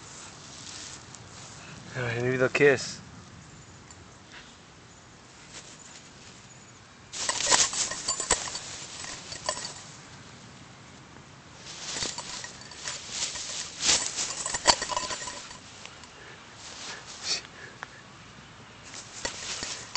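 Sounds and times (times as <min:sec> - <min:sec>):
tall grass rustling: 0:00.0 - 0:02.3, 0:05.2 - 0:06.5, 0:07.1 - 0:10.5, 0:11.5 - 0:17.4, 0:18.8 - 0:19.9.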